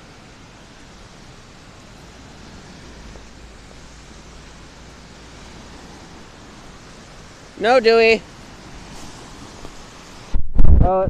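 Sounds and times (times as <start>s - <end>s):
lake waves breaking on sand: 0.0s - 10.3s
wind: 0.0s - 11.0s
wind rumble on microphone: 8.3s - 11.0s.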